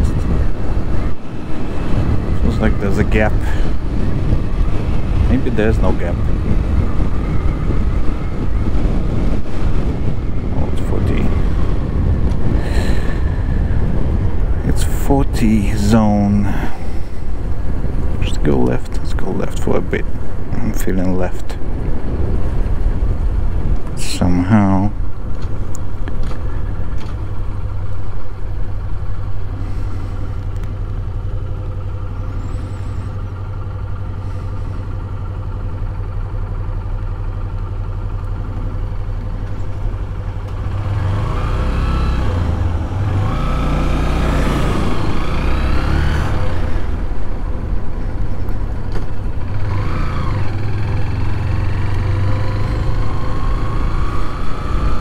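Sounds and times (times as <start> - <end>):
motorcycle engine running: 25.0 - 55.0.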